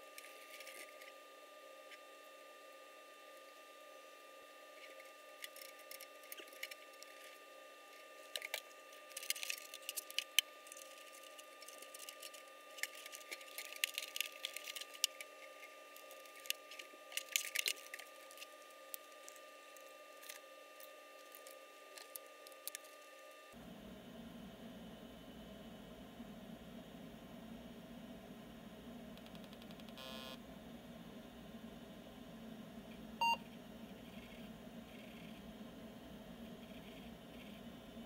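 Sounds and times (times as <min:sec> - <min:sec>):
handling clicks and rustles: 0:08.2 - 0:20.4.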